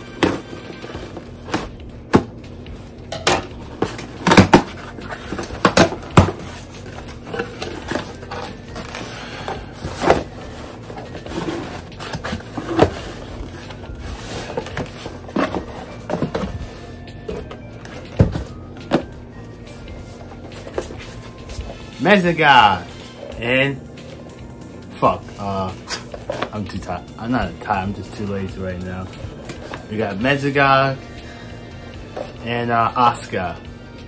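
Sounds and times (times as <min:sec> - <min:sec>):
box clicks and knocks: 0:00.0 - 0:02.4, 0:03.1 - 0:13.8, 0:14.4 - 0:19.1
rustling of box: 0:03.7 - 0:21.7.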